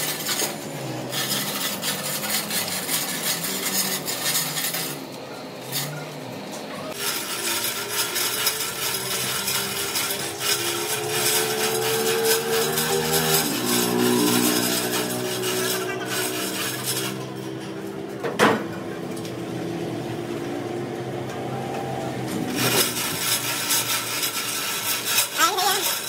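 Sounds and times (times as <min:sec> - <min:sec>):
rasping scraping noise: 0:00.0 - 0:20.4, 0:21.3 - 0:26.0
workshop machine humming: 0:00.0 - 0:26.0.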